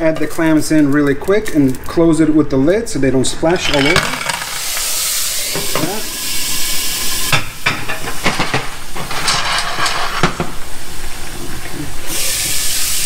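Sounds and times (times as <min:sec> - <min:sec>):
oil popping and crackling: 0:03.6 - 0:07.3
clams sizzling in oil: 0:03.6 - 0:13.0.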